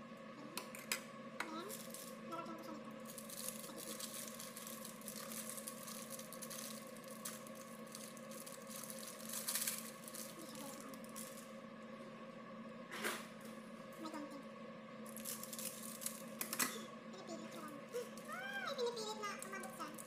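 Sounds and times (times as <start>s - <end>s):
low appliance hum: 0.0s - 20.0s
wrapping tearing and crinkling: 1.6s - 2.2s, 3.0s - 11.5s, 15.1s - 16.6s.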